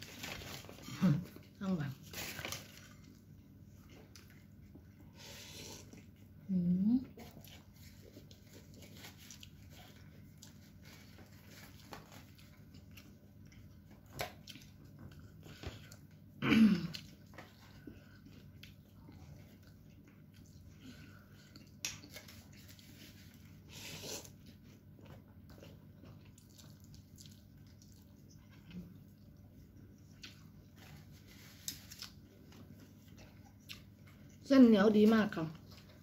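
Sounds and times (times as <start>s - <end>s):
chewing and slurping: 17.0s - 34.5s.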